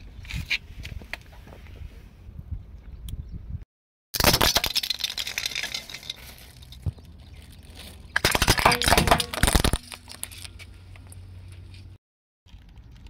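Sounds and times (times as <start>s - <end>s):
plastic toy cracking under tyre: 4.2s - 10.6s.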